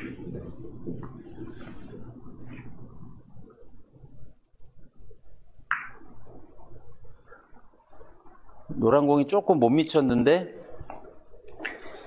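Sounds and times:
billiard balls rolling on cloth: 0.0s - 5.2s.

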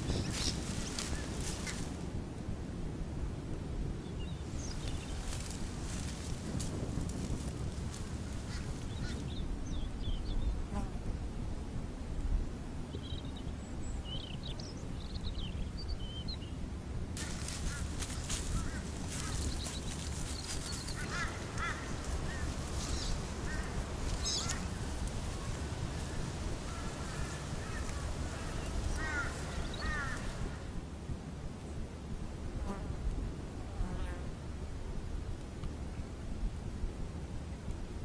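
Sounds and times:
birds chirping: 0.0s - 1.9s, 4.2s - 6.6s, 7.3s - 10.5s, 17.2s - 30.7s
dense crackling rustle: 0.0s - 2.1s, 4.5s - 9.3s, 17.2s - 30.6s
low outdoor rumble: 16.6s - 33.7s.

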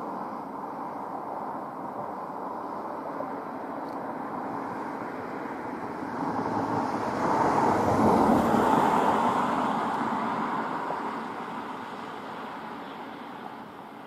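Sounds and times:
vehicle passing by: 4.6s - 13.7s.

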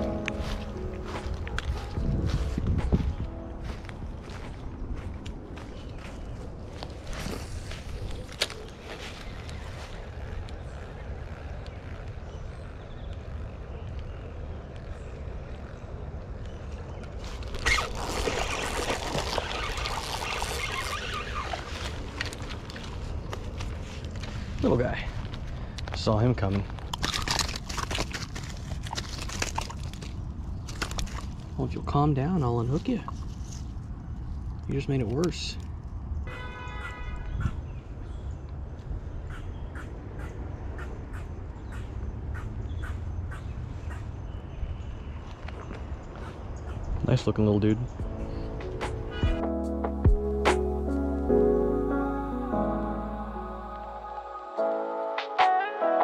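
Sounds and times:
wind on microphone: 1.0s - 8.4s.

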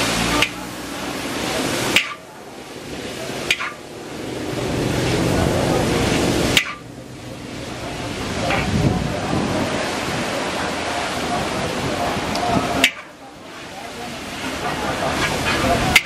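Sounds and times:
noodles sizzling in a wok: 0.0s - 8.7s, 12.7s - 16.0s
metal spatula clanking on wok: 1.9s - 2.3s, 3.4s - 3.8s, 6.5s - 6.9s, 12.8s - 13.1s.

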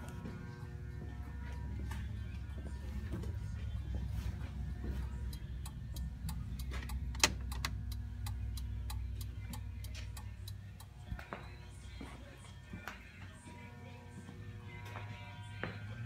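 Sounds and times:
low hum: 0.0s - 16.0s
turn-signal relay clicking: 5.3s - 10.6s.

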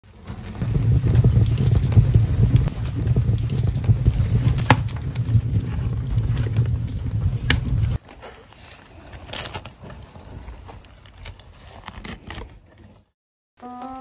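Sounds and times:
low rumble with crackles: 0.0s - 8.2s
pizza cutter crunching crust: 0.2s - 13.0s.

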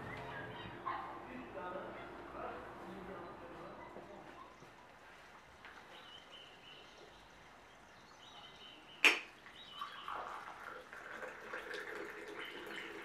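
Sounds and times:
tea pouring into a mug: 9.8s - 13.0s.

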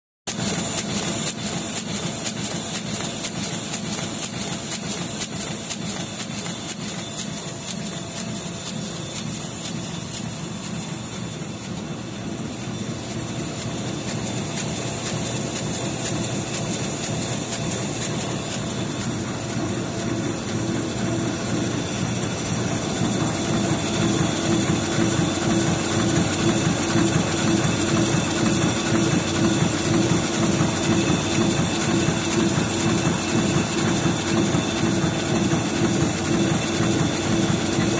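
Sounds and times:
printing press clatter: 0.3s - 37.9s
steady hum: 7.2s - 34.6s.

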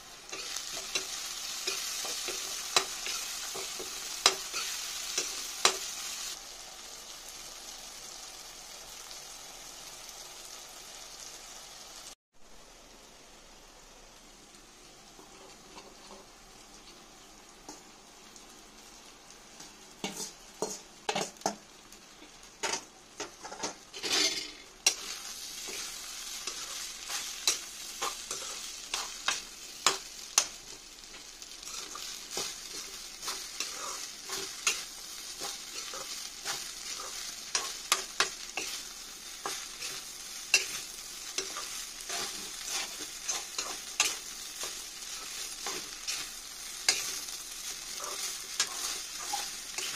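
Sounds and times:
food sizzling in a wok: 0.0s - 49.9s
metal spatula scraping a wok: 20.0s - 21.3s, 22.6s - 30.5s, 31.6s - 49.9s.

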